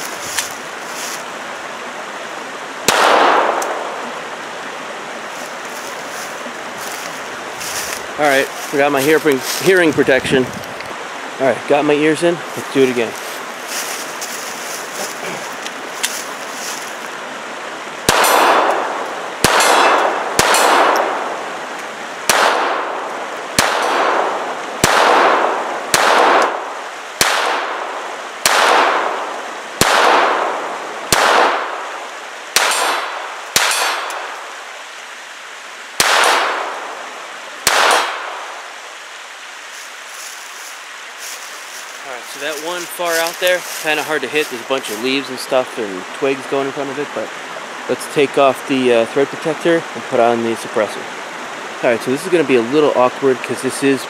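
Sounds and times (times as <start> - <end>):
pistol shots echoing: 2.8 - 3.9, 18.1 - 21.3, 22.3 - 26.6, 27.2 - 27.8, 28.4 - 31.8, 32.6 - 34.4, 36.0 - 36.8, 37.6 - 38.4.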